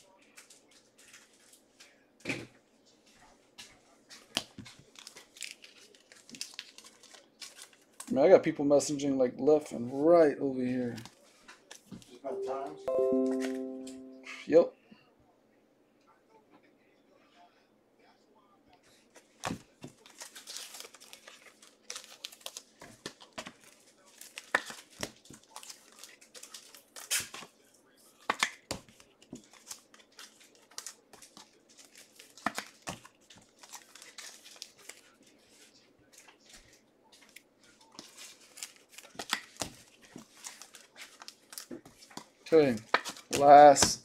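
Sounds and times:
card wrappers ripping and crinkling: 4.2s - 8.1s, 19.4s - 27.5s, 28.2s - 43.6s.

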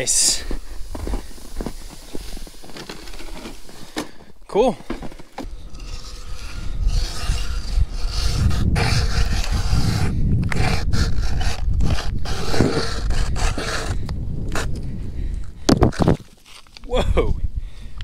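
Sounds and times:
ice auger grinding scrape: 0.5s - 14.0s.

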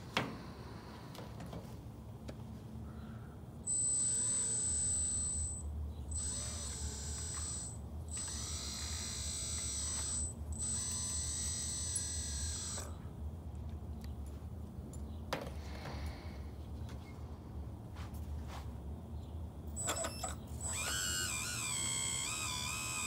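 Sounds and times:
electric motors whining: 3.7s - 13.0s, 19.7s - 23.0s.

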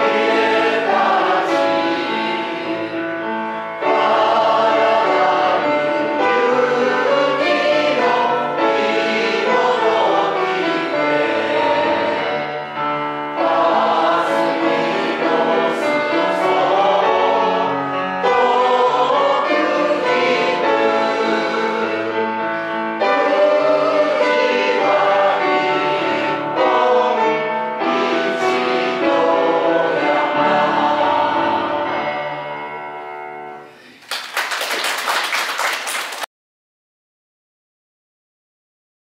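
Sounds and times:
group singing in unison: 0.0s - 33.0s
piano accompaniment: 0.0s - 34.0s
applause: 33.8s - 36.3s.

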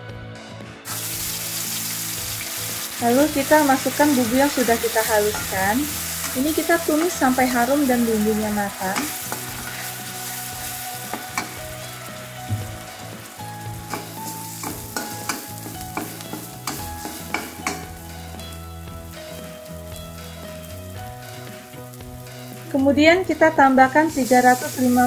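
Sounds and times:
paste sizzling in hot oil: 0.9s - 25.0s
metal spatula scraping wok: 2.5s - 13.1s
spatula clinking against wok: 13.9s - 17.9s.

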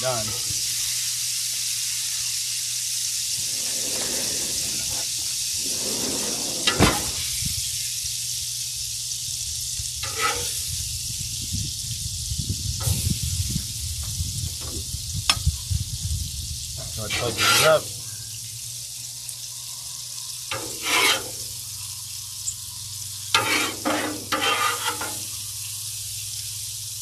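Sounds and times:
sauce sizzling on a griddle: 0.0s - 27.0s.

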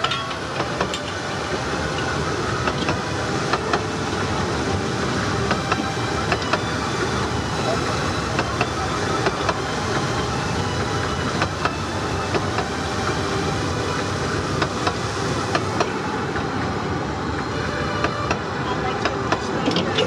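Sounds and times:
sharp track clicks: 0.0s - 3.9s, 8.3s - 9.7s
small train rumbling: 0.0s - 20.0s.

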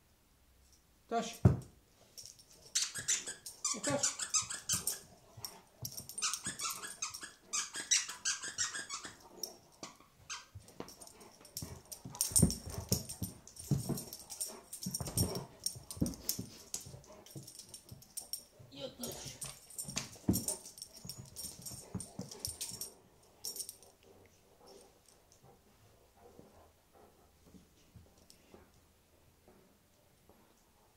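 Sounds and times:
squeaky toy squeaking: 2.7s - 5.1s, 6.2s - 9.2s, 10.3s - 10.6s.

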